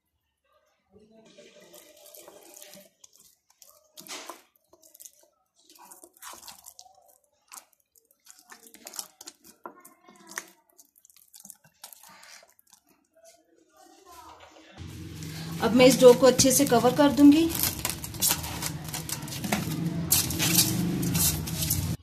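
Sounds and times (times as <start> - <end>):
hand rubbing and patting dough: 1.6 - 13.4, 14.8 - 22.0.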